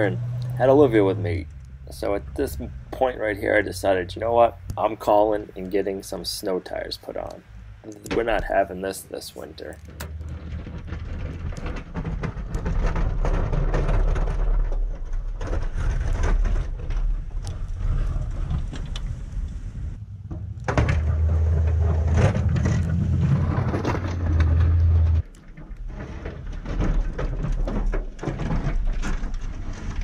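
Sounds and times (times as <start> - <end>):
pickup truck engine running: 0.0 - 14.7.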